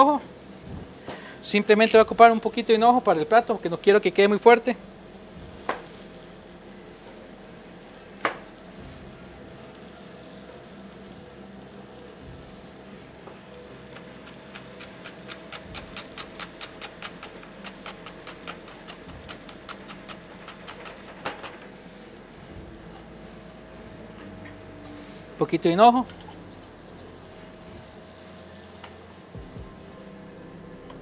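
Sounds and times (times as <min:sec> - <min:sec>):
faint frying sizzle: 0:00.0 - 0:31.0.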